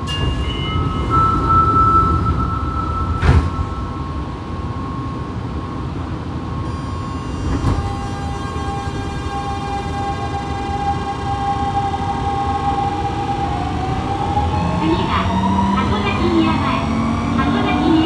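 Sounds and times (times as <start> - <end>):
subway train running rumble: 0.0 - 18.0
thump: 3.2 - 3.6.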